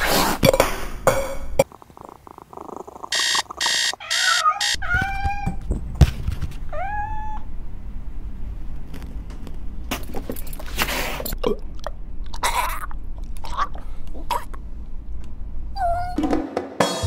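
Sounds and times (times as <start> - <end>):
electronic alarm buzzing: 3.1 - 4.8
cat meowing: 3.9 - 5.6, 6.7 - 7.5.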